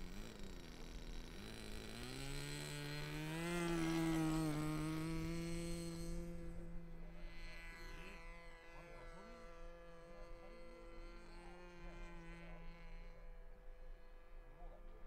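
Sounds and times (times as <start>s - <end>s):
model airplane engine buzz: 0.0s - 15.0s.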